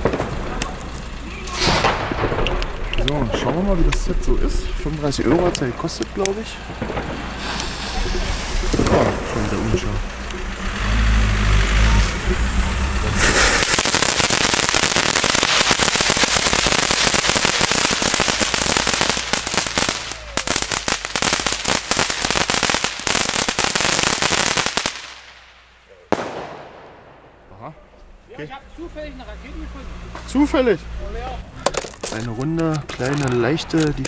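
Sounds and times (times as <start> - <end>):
firework spray hissing: 0.0 - 2.9, 6.4 - 26.8
low rumble: 0.0 - 14.0, 25.5 - 30.1
firework crackling: 0.0 - 34.0.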